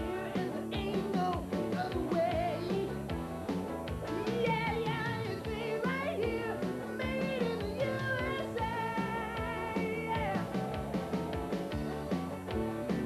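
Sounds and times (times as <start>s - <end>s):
person singing: 0.0s - 3.0s, 4.1s - 11.3s
guitar: 0.0s - 13.0s
steady drum beat: 0.0s - 13.0s
upbeat rock song: 0.0s - 13.0s.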